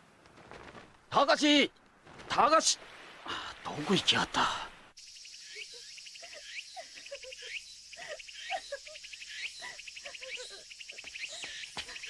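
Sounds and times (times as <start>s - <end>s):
insects chirping: 2.1s - 12.0s
steady high hiss: 2.4s - 11.0s
birds chirping: 3.7s - 12.0s.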